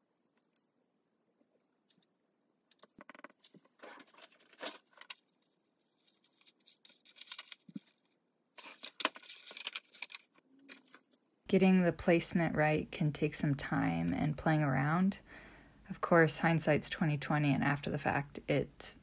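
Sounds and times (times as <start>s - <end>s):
paper sheets rustling: 2.8s - 11.2s.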